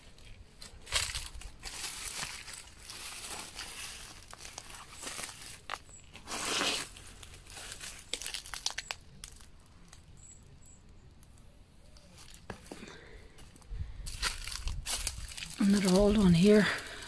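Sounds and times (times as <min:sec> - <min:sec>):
footsteps through dry grass: 0:00.0 - 0:09.2, 0:13.4 - 0:17.0.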